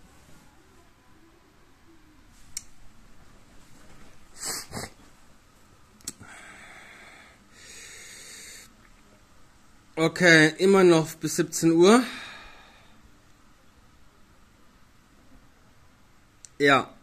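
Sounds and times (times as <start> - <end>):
man sniffing: 4.3 - 5.0
man breathing out: 6.2 - 8.7.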